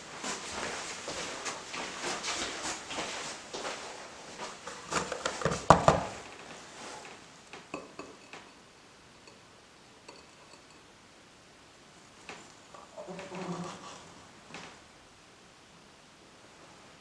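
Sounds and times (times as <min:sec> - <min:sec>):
metal spoon clinking against dishes: 0:10.0 - 0:10.8
spoon scraping glass dish: 0:10.1 - 0:10.8.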